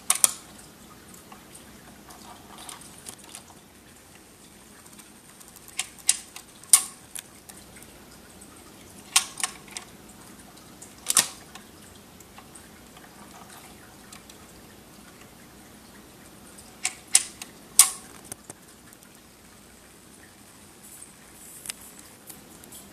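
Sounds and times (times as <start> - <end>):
record changer mechanism clicks: 0.0 - 0.4, 11.0 - 11.7, 16.8 - 18.6.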